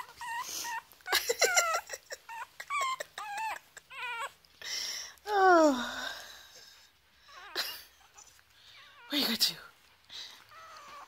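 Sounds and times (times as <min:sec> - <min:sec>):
dog whining: 0:00.0 - 0:04.5, 0:07.2 - 0:09.3, 0:10.3 - 0:11.0
dog whimpering: 0:00.0 - 0:04.6, 0:06.6 - 0:09.4, 0:10.1 - 0:11.0.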